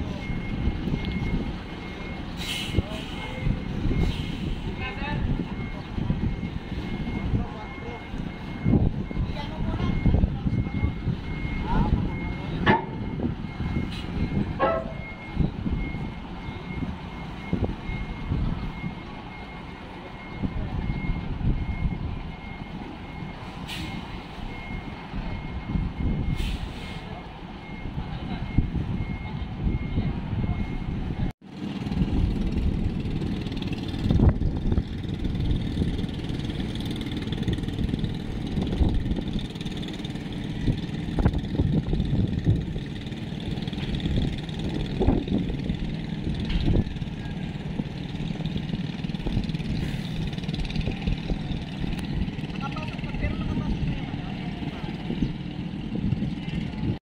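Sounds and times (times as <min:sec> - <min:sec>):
reversing alarm beeping: 0:00.0 - 0:31.3
diesel engine rumble: 0:00.0 - 0:57.0.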